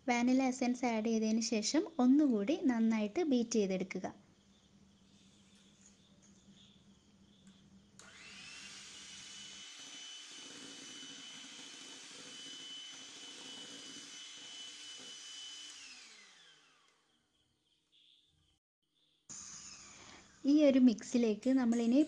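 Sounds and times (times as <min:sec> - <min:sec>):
electric hand mixer whirring: 0:08.0 - 0:17.0, 0:19.3 - 0:20.5.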